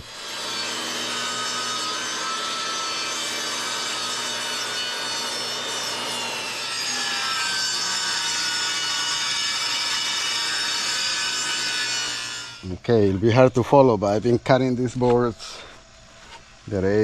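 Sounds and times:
table saw cutting wood: 0.0s - 12.7s.

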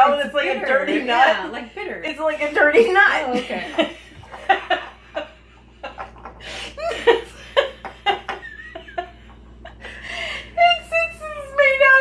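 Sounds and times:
women laughing: 2.6s - 11.1s.

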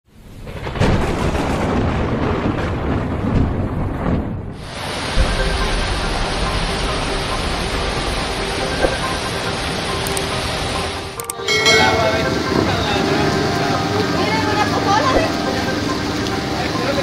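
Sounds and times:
thunder rumbling: 0.1s - 10.8s, 11.5s - 17.0s
heavy rain: 0.1s - 17.0s
floodwater rushing: 4.6s - 17.0s.

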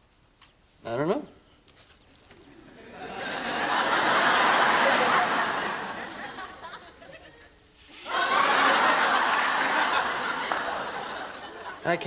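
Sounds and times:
studio audience laughing: 2.6s - 11.8s.

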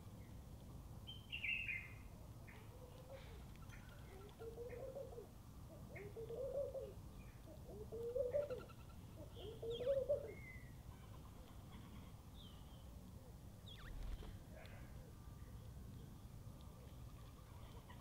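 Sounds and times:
small birds chirping: 0.0s - 18.0s
dove cooing: 2.6s - 11.4s.

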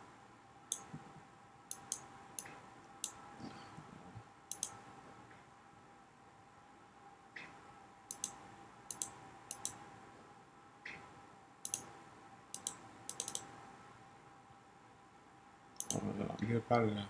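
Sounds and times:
computer mouse clicking: 0.7s - 0.9s, 1.7s - 3.2s, 4.5s - 4.8s, 7.4s - 9.8s, 10.9s - 11.9s, 12.5s - 13.5s, 15.8s - 16.0s.

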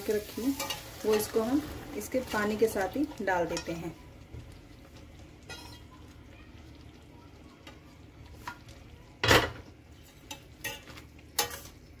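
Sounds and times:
food sizzling in a pan: 0.0s - 12.0s
metal spatula clinking on pan: 5.5s - 5.8s, 10.2s - 11.8s.

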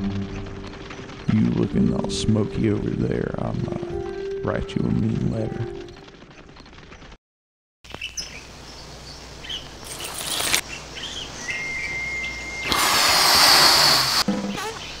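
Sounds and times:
low hum: 0.0s - 7.2s, 8.4s - 13.2s
bird chirps: 7.9s - 12.8s
whistle-like tone: 11.4s - 13.8s
hiss: 12.2s - 14.3s.

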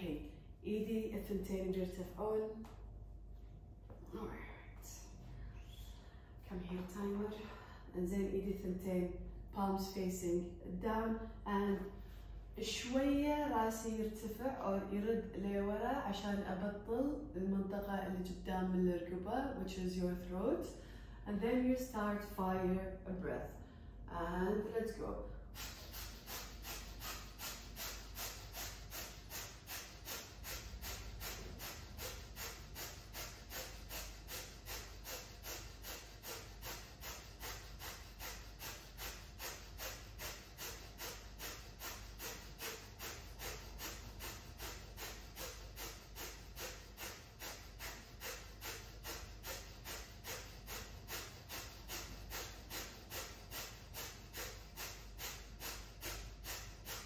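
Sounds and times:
forceful exhales through nose: 25.5s - 57.0s.

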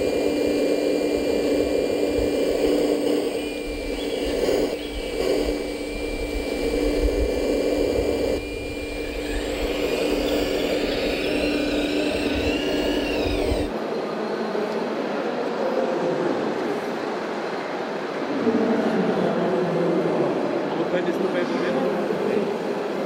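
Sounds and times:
hydraulic pump whine: 0.0s - 13.8s
machine hum: 0.0s - 13.8s.

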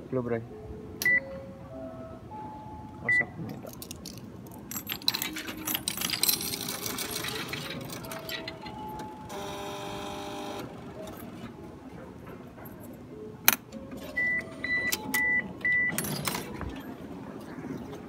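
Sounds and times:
machine mechanism clicking and rattling: 3.6s - 9.2s
motor whir: 9.3s - 10.8s.

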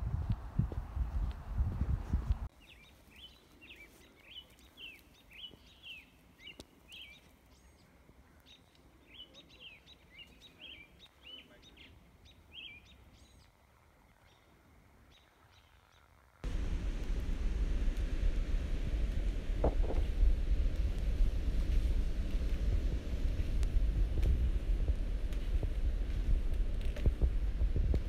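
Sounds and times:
faint bird chirping: 2.5s - 16.4s.

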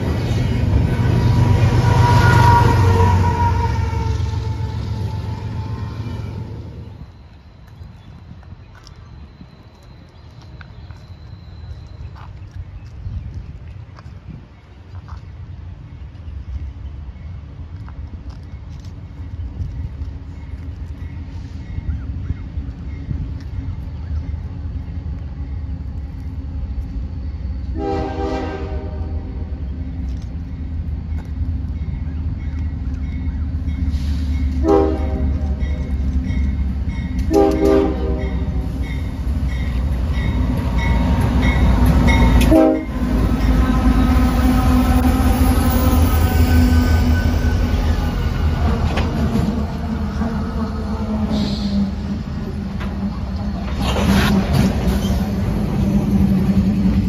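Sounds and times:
diesel locomotive engine rumble: 0.0s - 57.0s
train horn blasts: 1.0s - 6.7s, 27.7s - 29.5s, 34.5s - 35.9s, 37.2s - 39.0s, 42.1s - 47.6s.

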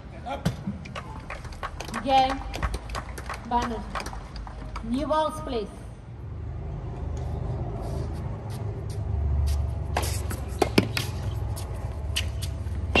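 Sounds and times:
tennis ball bouncing on hard court: 10.0s - 13.0s.

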